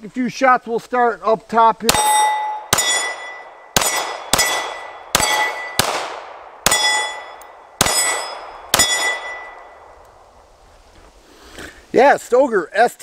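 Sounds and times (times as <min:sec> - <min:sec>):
steel plate target clanging: 0:01.9 - 0:05.8, 0:06.7 - 0:09.8
pistol shots: 0:01.9 - 0:09.8.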